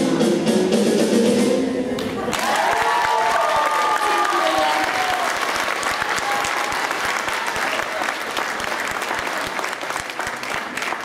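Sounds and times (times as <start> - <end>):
backing music: 0.0 - 2.3
audience applauding: 2.3 - 11.0.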